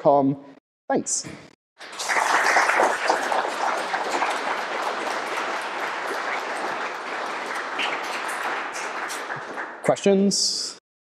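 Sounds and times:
audience applauding: 1.8 - 10.1.

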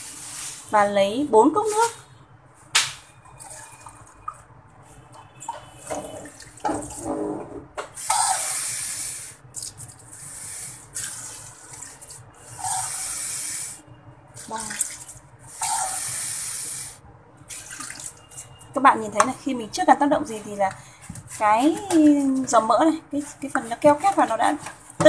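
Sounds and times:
water splashing into steel sink: 14.4 - 16.0, 17.5 - 18.3.

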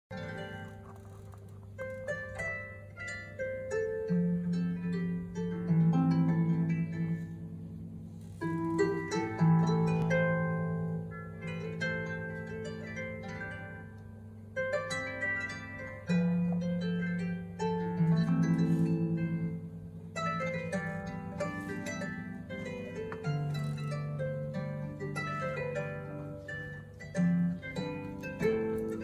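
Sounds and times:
solo harp playing: 0.1 - 29.0.

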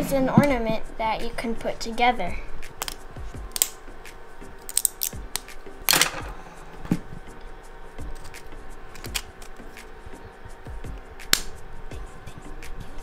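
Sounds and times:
plastic pieces clicking and rustling: 4.6 - 6.4, 9.0 - 9.6.

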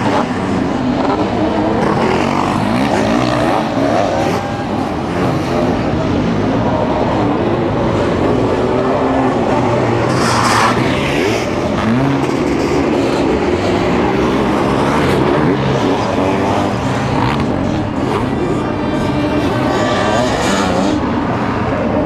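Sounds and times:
motocross engines racing past: 0.0 - 22.0.

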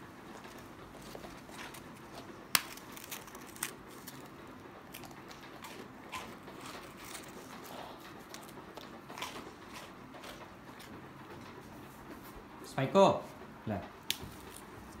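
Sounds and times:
dog crunching dry biscuits: 0.3 - 11.5.

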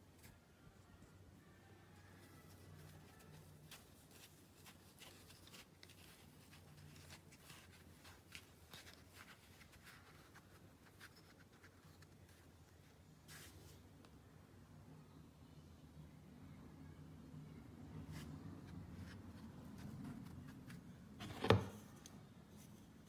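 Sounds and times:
hands handling plastic parts: 2.5 - 13.5.

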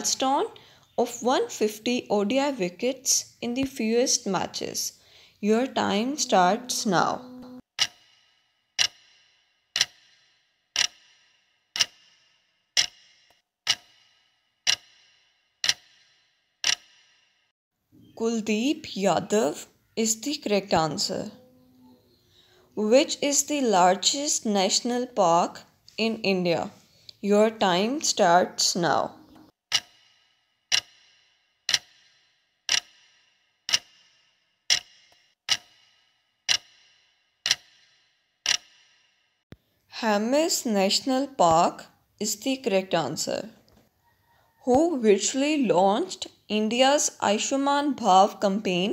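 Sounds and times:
clock ticking: 0.0 - 17.2, 27.5 - 39.1.

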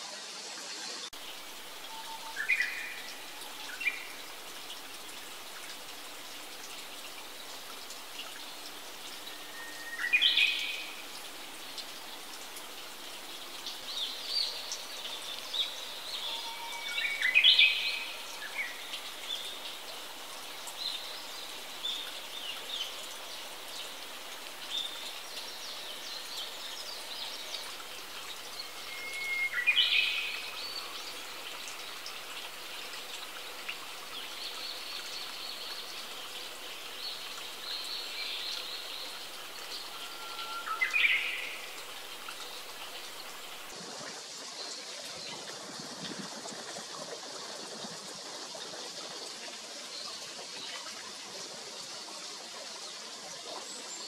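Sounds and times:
water trickling: 0.1 - 54.0
songbird singing: 1.1 - 12.4, 13.2 - 43.7.

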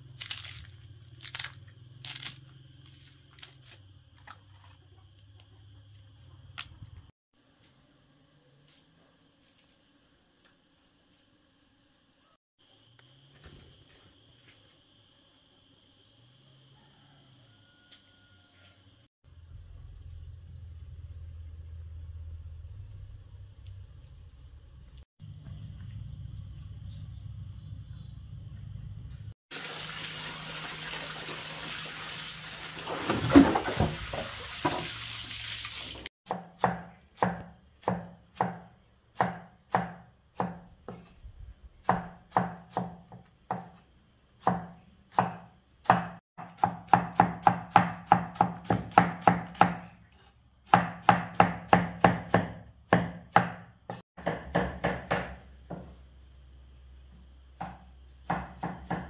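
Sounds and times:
water running from a tap: 29.5 - 36.1
knife chopping on cutting board: 36.3 - 41.1, 41.9 - 43.8, 44.4 - 49.9, 50.7 - 56.0, 57.6 - 59.0.

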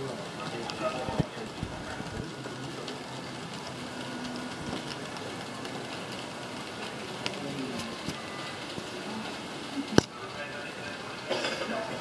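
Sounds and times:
model train motors whirring: 0.0 - 12.0.

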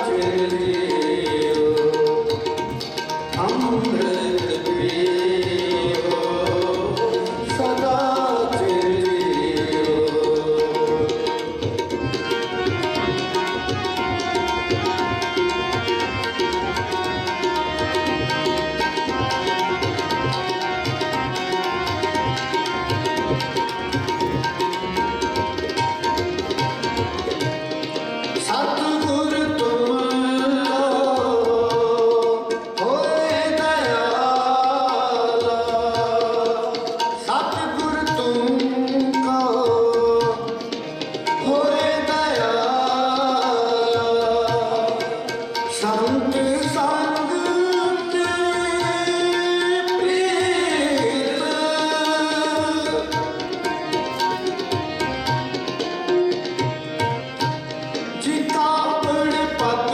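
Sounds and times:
harmonium: 0.0 - 59.9
tabla rhythm: 0.0 - 59.9
men singing devotional phrases: 28.6 - 38.7, 41.5 - 45.0.

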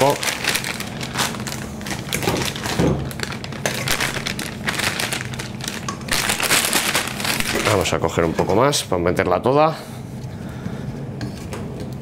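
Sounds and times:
plastic piping bag rustling: 0.0 - 8.1.

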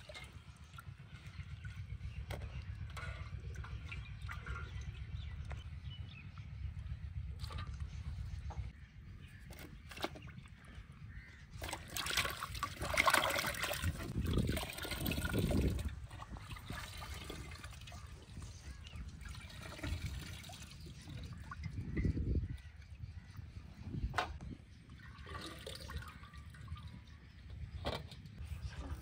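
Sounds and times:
water sloshing in steel pot: 0.0 - 5.6, 11.5 - 22.2.

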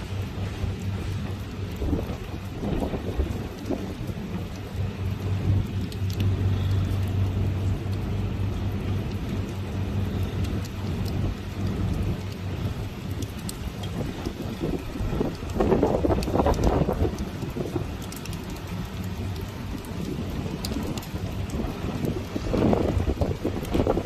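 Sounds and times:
heavy rain: 0.0 - 24.0
raindrop ticks: 0.0 - 24.0
steady low hum: 0.0 - 24.0
wind: 0.0 - 24.0.

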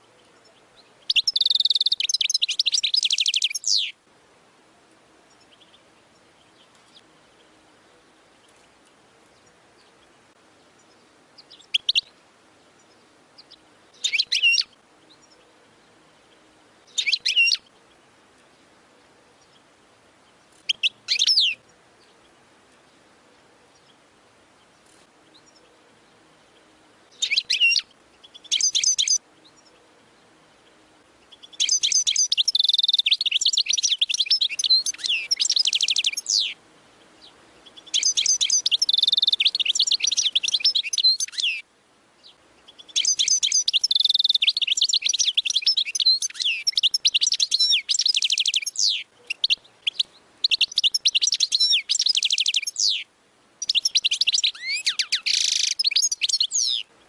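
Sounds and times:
goldfinch twittering and trills: 0.0 - 4.0, 10.7 - 15.4, 16.2 - 18.6, 19.4 - 22.3, 27.0 - 29.7, 30.6 - 41.6, 42.2 - 56.9.

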